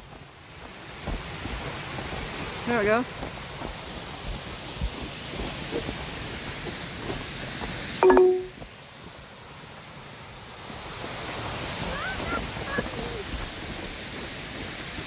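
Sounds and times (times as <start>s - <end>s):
water rushing over rocks: 0.0s - 15.0s
phone notification beep: 8.0s - 8.5s.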